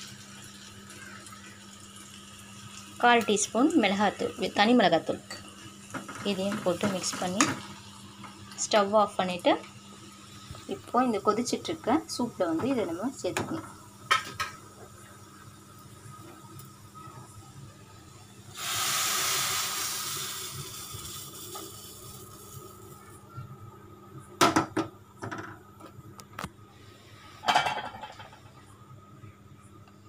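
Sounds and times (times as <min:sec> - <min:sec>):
oil sizzling hiss: 0:00.0 - 0:23.2
metal pan clattering: 0:27.4 - 0:28.3.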